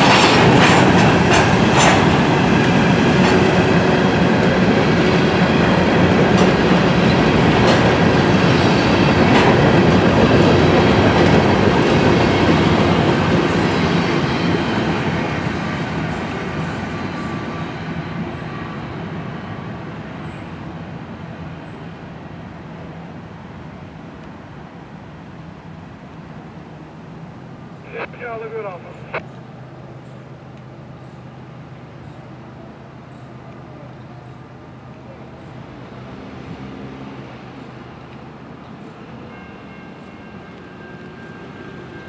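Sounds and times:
train wheels clattering over rails: 0.0 - 17.6.

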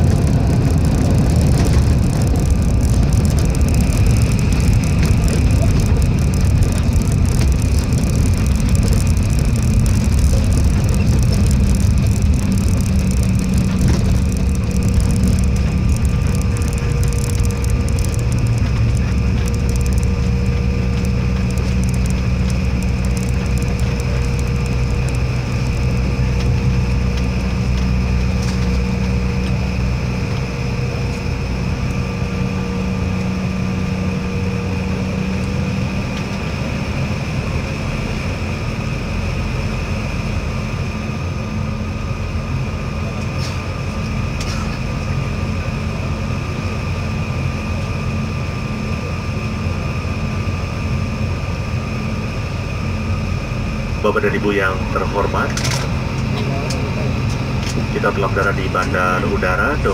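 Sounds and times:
high whining tones: 0.0 - 35.5
airliner engine rumble: 0.0 - 59.9.

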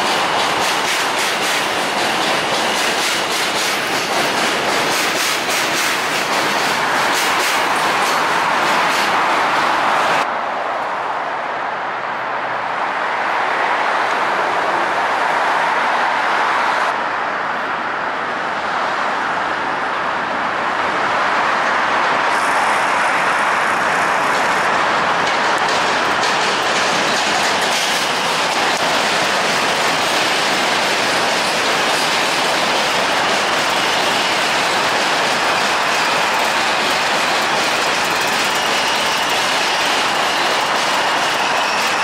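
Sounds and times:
train wheels on bridge rails: 0.0 - 10.3, 22.1 - 42.0.

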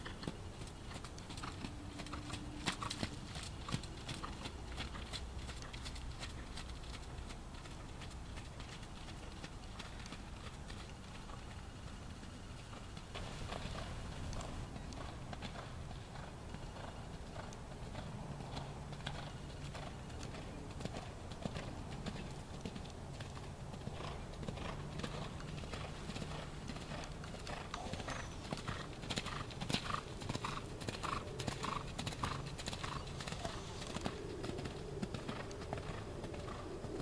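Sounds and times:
horse hoofbeats on sand: 23.9 - 36.7.

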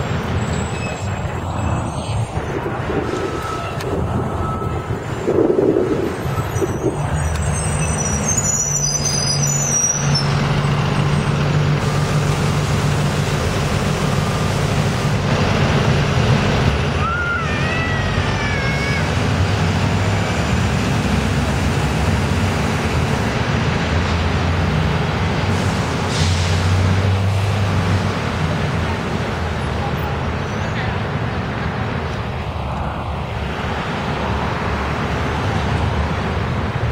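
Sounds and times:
bus engines humming: 0.0 - 36.9
high-pitched brake squeals: 0.4 - 2.3, 3.0 - 4.8, 6.2 - 11.6.

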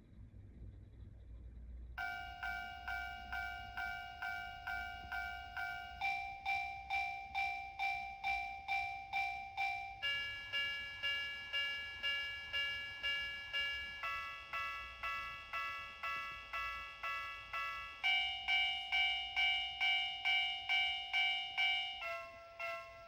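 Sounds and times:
electronic crossing warning bell: 2.0 - 23.0.

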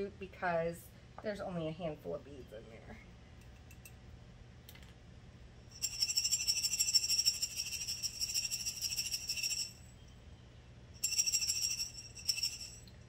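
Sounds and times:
beads rattling in a glass jar: 5.7 - 9.8, 11.0 - 12.9.

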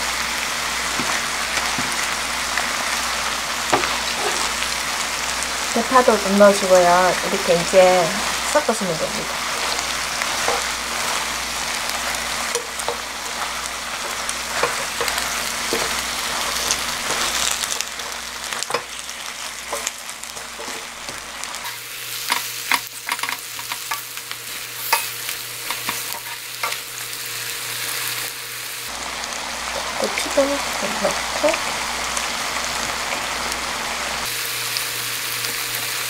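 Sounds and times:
food sizzling in a wok: 0.0 - 36.0
utensils clicking and scraping pan: 3.7 - 4.6, 8.6 - 27.0.

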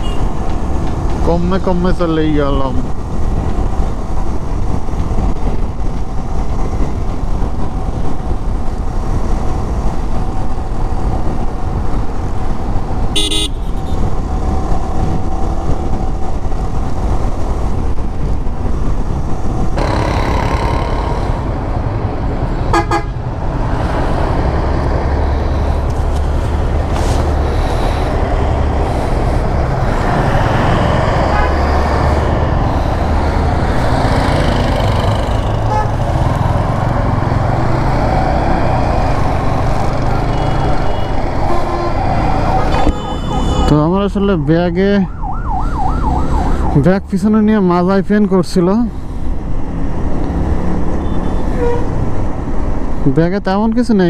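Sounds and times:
vehicle horn honking: 0.0 - 0.3, 13.2 - 14.0, 22.7 - 23.2, 40.3 - 42.0, 42.6 - 43.7, 51.0 - 51.9
traffic noise: 0.0 - 54.0
motorcycle engine running: 19.8 - 22.0.

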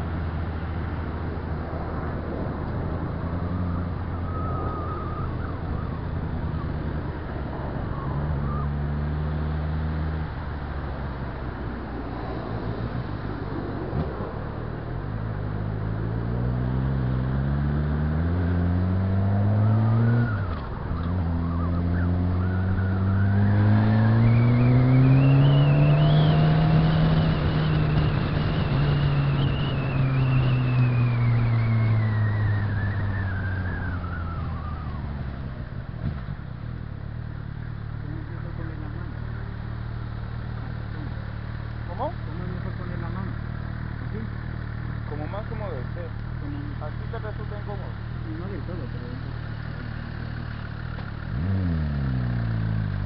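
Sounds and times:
motorcycle engine accelerating: 15.3 - 53.0.

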